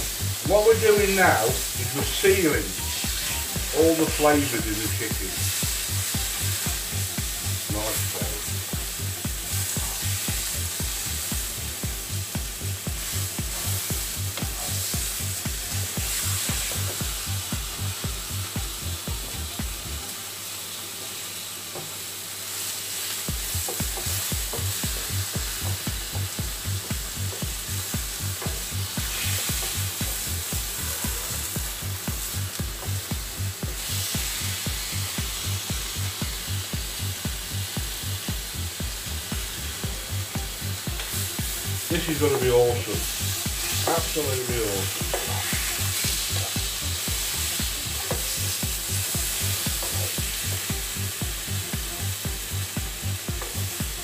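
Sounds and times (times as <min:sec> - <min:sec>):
steady low beat: 0:00.0 - 0:20.1, 0:23.3 - 0:54.0
chicken sizzling in a frying pan: 0:00.0 - 0:54.0.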